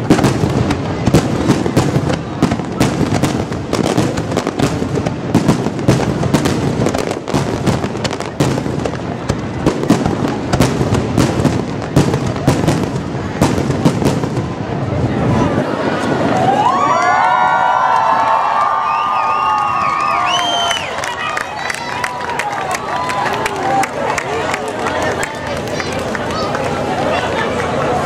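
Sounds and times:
fireworks bursting: 0.0s - 16.2s.

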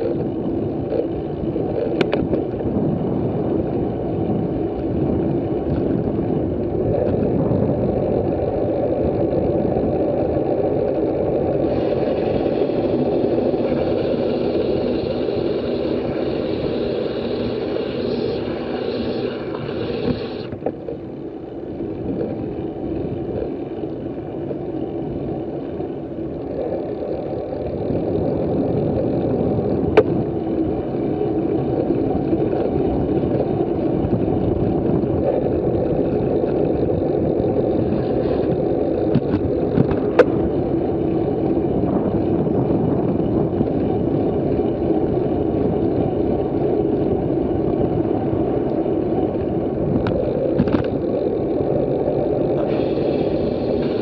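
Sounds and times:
road rumble: 0.0s - 54.0s
wind rushing over microphone: 0.0s - 54.0s
bright hiss: 13.6s - 20.5s.

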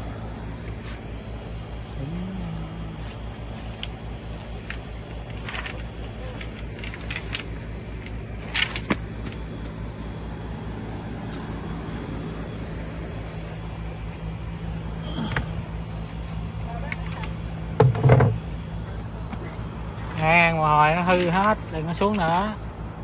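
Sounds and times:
engine pulsing hum: 0.0s - 23.0s.

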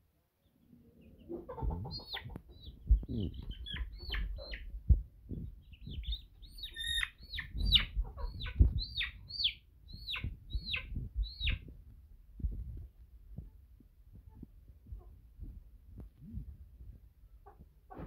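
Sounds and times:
chick peeping: 0.4s - 11.8s, 17.4s - 18.0s.

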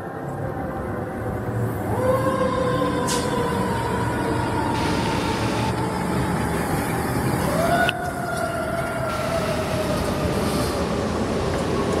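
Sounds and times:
fire engine siren whining: 1.8s - 10.7s
engine and road noise: 2.8s - 12.0s.

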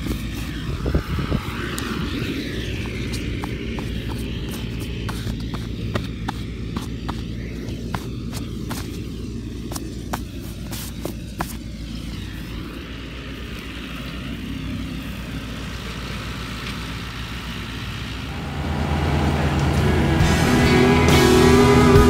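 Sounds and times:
tractor diesel engine running: 0.0s - 22.0s
music: 19.6s - 22.0s.

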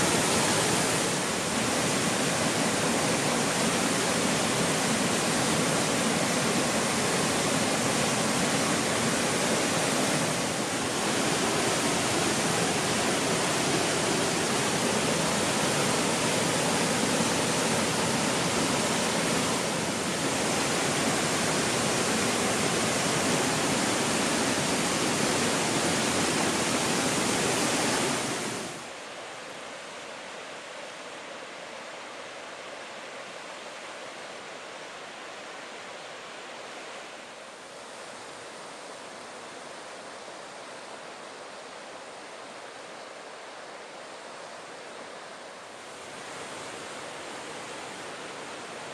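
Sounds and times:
waterfall roaring: 0.0s - 30.0s, 36.1s - 48.9s.

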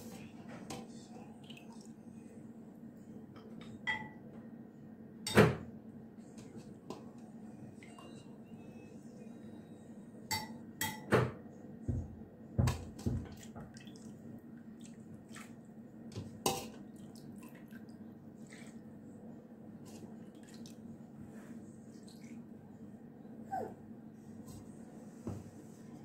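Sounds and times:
low steady hum: 0.0s - 26.0s
broth splashing and dripping: 13.2s - 15.6s.

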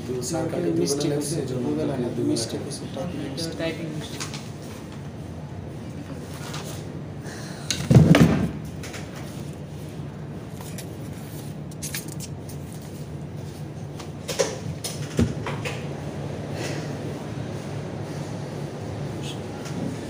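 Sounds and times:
low room hum: 0.0s - 20.0s
loud thud: 7.9s - 8.6s.

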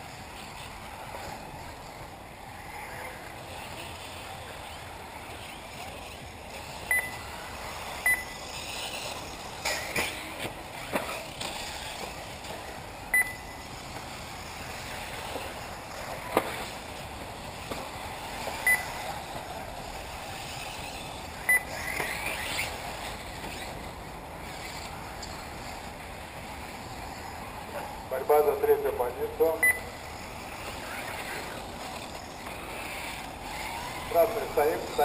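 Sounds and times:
rc car motor whine: 0.0s - 35.0s
short high beeps: 6.9s - 7.3s, 8.0s - 8.4s, 13.1s - 13.6s, 18.6s - 18.9s, 21.5s - 21.8s, 29.6s - 30.0s.

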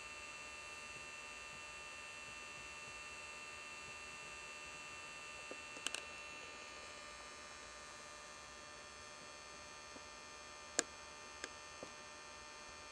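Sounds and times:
faint high whine: 0.0s - 12.9s
steady electrical hum: 0.0s - 12.9s
sharp clicks: 5.8s - 6.0s.

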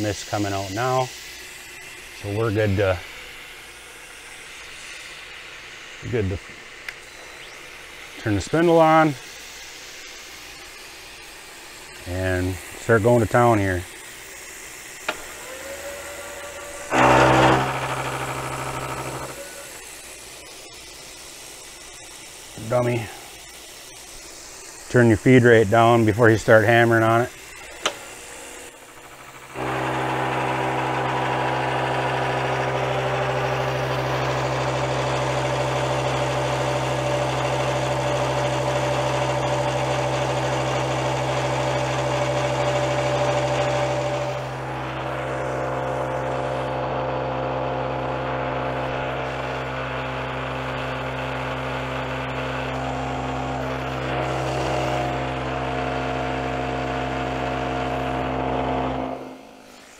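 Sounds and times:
milling machine spindle humming: 0.0s - 59.9s
cutter grinding steel: 15.0s - 20.5s, 25.5s - 59.9s.

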